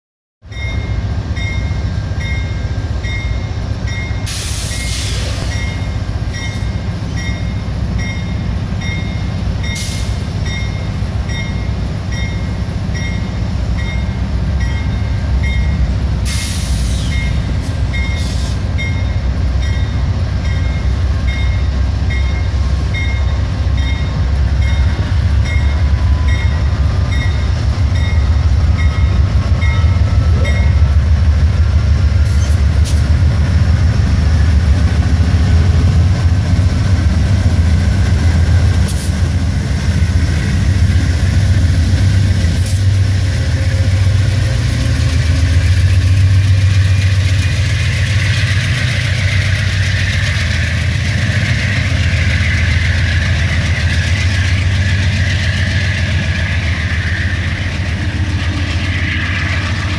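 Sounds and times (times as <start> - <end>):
locomotive bell ringing: 0.4 - 4.3, 5.5 - 16.0, 17.1 - 31.1
diesel locomotive rumble: 0.4 - 59.9.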